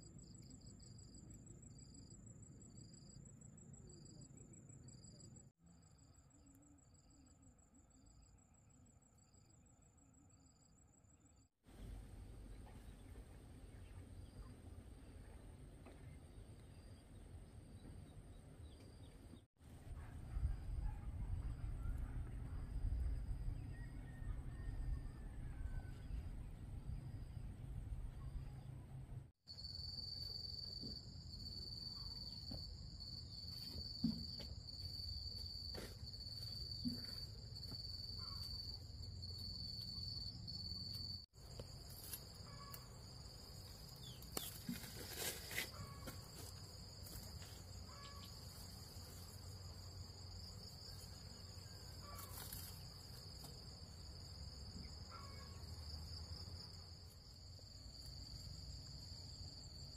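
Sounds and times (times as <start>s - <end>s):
insects trilling: 29.5s - 59.9s.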